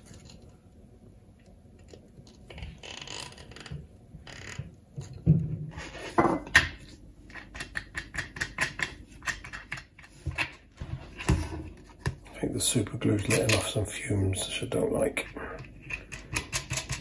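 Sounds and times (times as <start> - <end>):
rustling and scraping on wood: 10.0 - 12.3.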